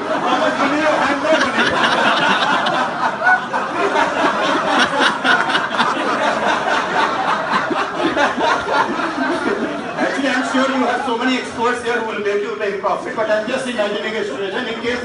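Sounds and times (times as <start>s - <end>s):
group of people laughing: 0.0s - 11.4s.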